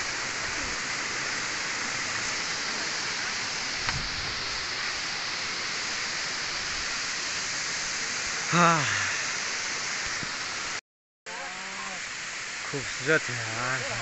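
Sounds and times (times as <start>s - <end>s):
waterfall rushing: 0.0s - 14.0s.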